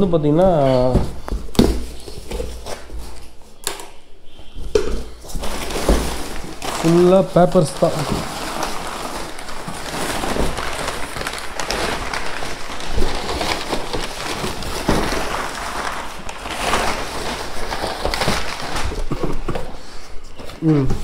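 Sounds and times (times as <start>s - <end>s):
packing paper crackling: 5.0s - 20.8s.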